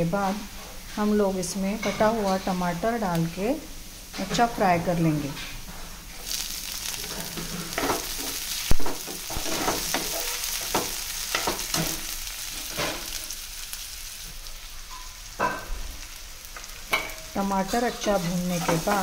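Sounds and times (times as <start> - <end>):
onion sizzling in hot oil: 0.0 - 19.0
steel spoon scraping a pan: 5.7 - 8.7, 9.3 - 13.4, 16.5 - 19.0.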